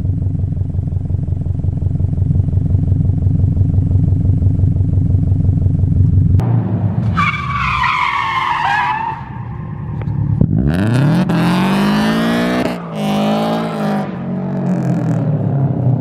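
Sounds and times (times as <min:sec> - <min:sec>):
car engine revving: 0:06.3 - 0:16.0
tyres squealing: 0:07.1 - 0:09.7.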